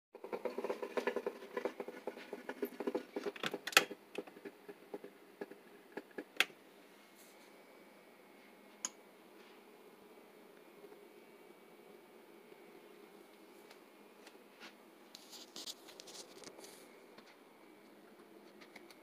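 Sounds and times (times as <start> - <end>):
small clicks and crackles: 0.2 - 6.6, 13.3 - 19.0
faint room hum: 0.2 - 19.0.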